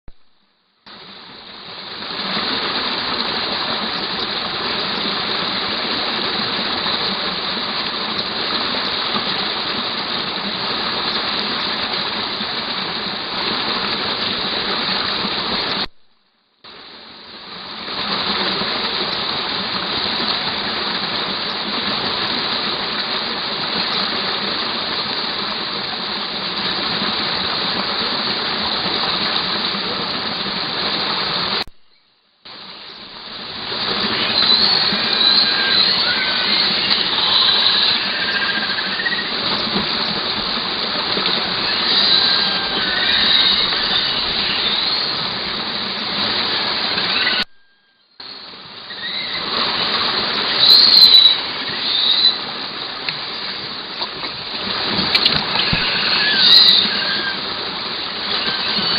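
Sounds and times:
stream rushing hiss: 0:00.9 - 0:16.0, 0:16.6 - 0:31.8, 0:32.4 - 0:58.9.

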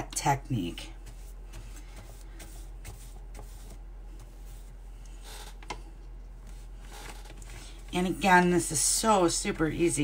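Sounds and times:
paintbrush swishing on paper: 0:00.5 - 0:05.6.

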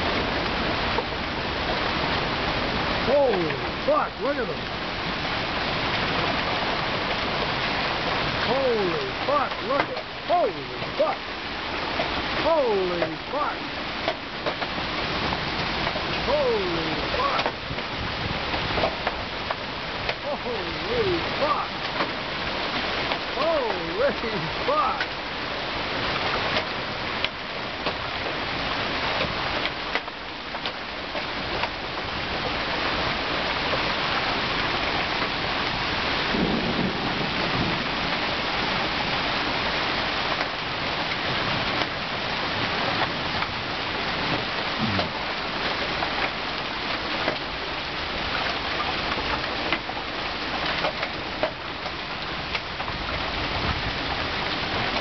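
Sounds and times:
heavy rain hiss: 0:00.0 - 0:55.0
raindrops tapping close by: 0:00.0 - 0:55.0.

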